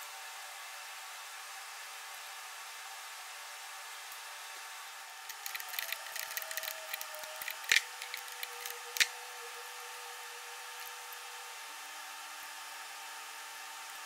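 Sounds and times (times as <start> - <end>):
faint hum: 3.1 - 14.0
sharp clicks: 5.3 - 9.1.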